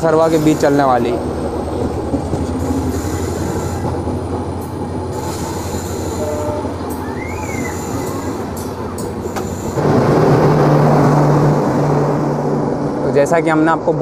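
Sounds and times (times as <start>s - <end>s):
train wheels rumbling on rails: 0.0s - 14.0s
high squeal: 5.2s - 9.8s.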